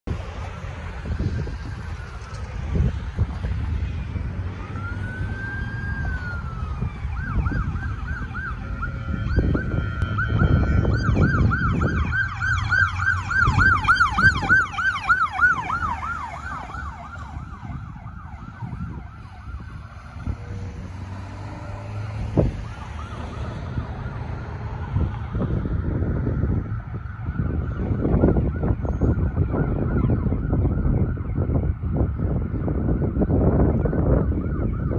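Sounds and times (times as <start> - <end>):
road traffic rumble: 0.0 - 34.9
ambulance siren wailing and yelping: 0.4 - 34.9.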